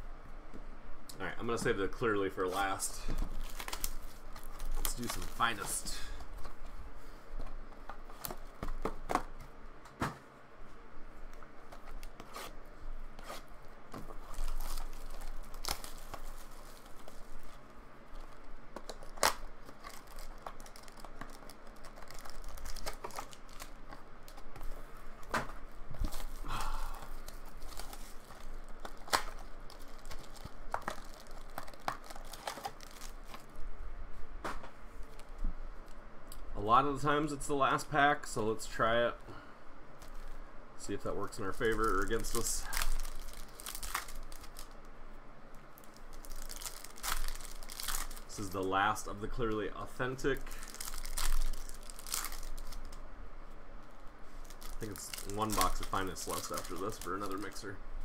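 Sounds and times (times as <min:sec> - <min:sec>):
plastic wrap tearing and crinkling: 0:02.4 - 0:06.1, 0:13.2 - 0:25.3, 0:26.0 - 0:33.5, 0:40.9 - 0:44.8, 0:45.7 - 0:48.6, 0:50.2 - 0:53.0, 0:54.0 - 0:57.8
foil packs clicking: 0:02.6 - 0:06.0, 0:18.2 - 0:24.6, 0:26.0 - 0:33.5, 0:41.3 - 0:44.7, 0:45.8 - 0:48.6, 0:50.4 - 0:52.9, 0:54.4 - 0:57.7.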